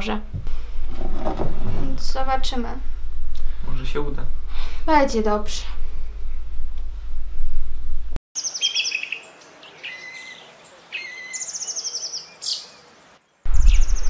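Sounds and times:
low hum: 0.0s - 8.2s
songbirds chirping and trilling: 8.4s - 14.0s.

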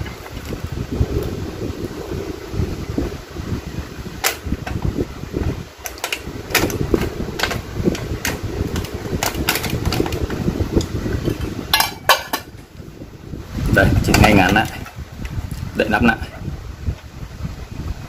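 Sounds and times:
steady low rumble: 0.0s - 18.0s
clatter: 5.8s - 12.5s.

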